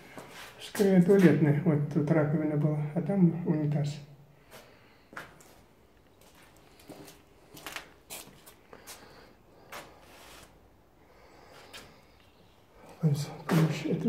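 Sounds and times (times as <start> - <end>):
footsteps crunching on debris: 6.2 - 9.1.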